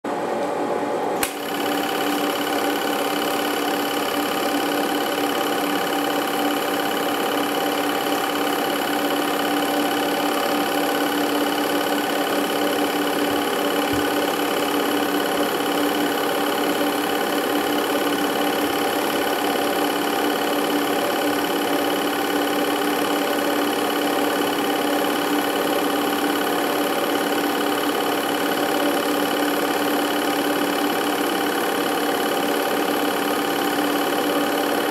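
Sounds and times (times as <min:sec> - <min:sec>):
film projector whirring and rattling: 0:01.0 - 0:34.9
sharp click: 0:01.2 - 0:01.5.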